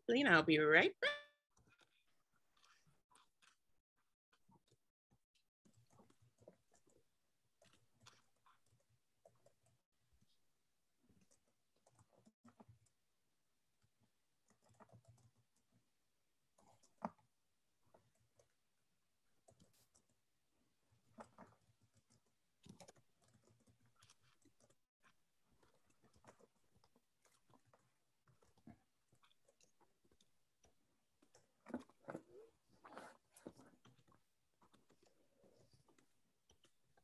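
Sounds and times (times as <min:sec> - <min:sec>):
small rustling noises: 0:01.5 - 0:03.6, 0:13.8 - 0:37.0.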